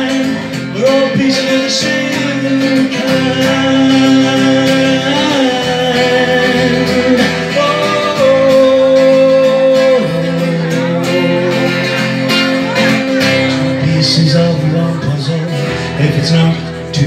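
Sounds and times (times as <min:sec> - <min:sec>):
man singing long held notes: 0:00.0 - 0:12.1
strummed acoustic guitar: 0:00.0 - 0:17.0.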